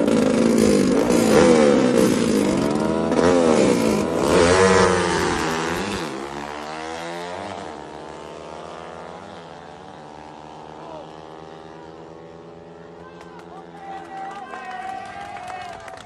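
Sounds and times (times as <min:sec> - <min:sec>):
motorcycle engines revving: 0:00.0 - 0:16.0.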